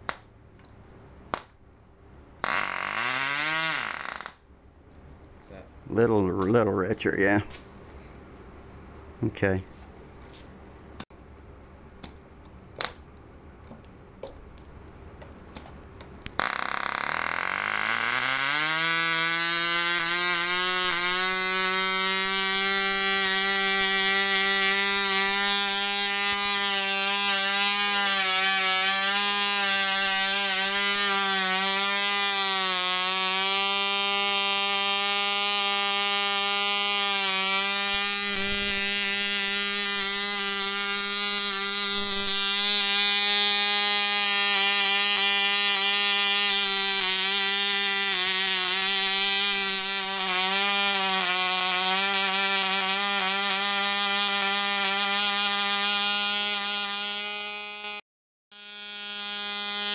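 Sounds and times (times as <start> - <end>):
small engine high-pitched buzz: 2.3 - 4.5, 16.2 - 59.9.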